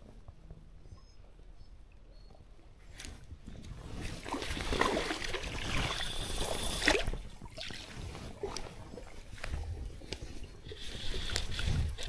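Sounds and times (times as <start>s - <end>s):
water sloshing in a stream: 3.6s - 12.0s.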